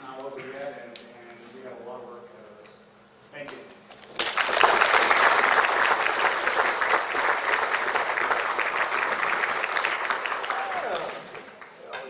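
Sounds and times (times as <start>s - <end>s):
audience applauding: 4.1s - 11.9s.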